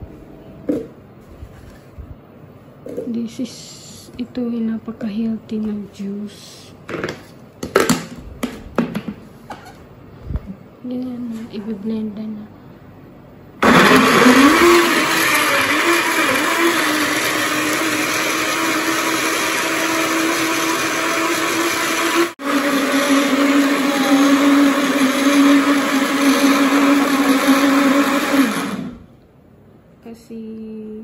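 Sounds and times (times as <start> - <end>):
blender motor running: 13.6 - 29.1.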